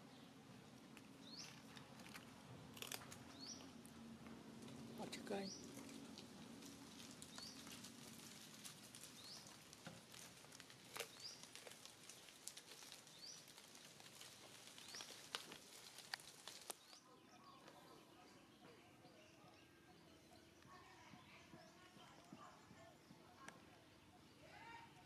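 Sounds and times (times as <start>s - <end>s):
soft clicks and rustles: 5.6s - 17.0s.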